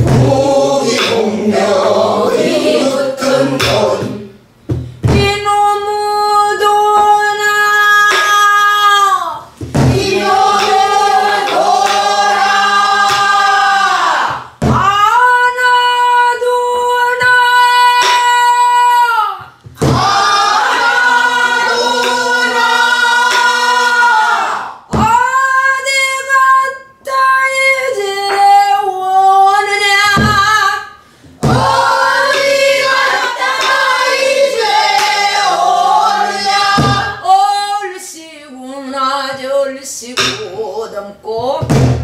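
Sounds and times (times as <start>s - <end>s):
barrel drum strokes: 0.0s - 5.5s, 9.6s - 15.0s, 19.7s - 23.9s, 31.3s - 37.2s
woman singing: 5.0s - 10.8s, 14.6s - 20.0s, 25.0s - 34.0s, 36.5s - 41.8s.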